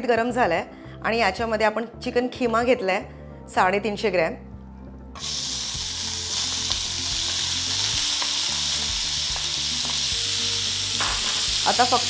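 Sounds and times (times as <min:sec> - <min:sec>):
mince sizzling in a pan: 0:05.2 - 0:12.0.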